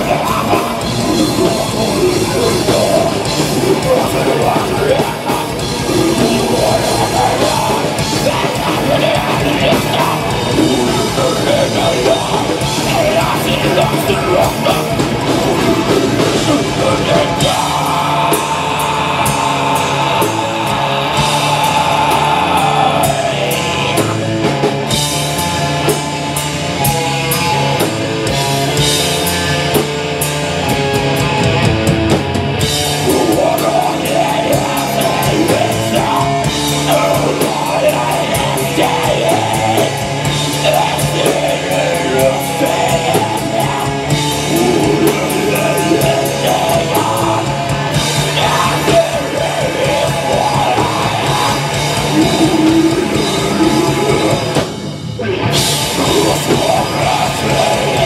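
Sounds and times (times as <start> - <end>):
vocalist singing into microphone: 0.0 - 24.6, 32.9 - 58.0
electric guitar: 0.0 - 58.0
fast drumming and cymbals: 0.0 - 58.0.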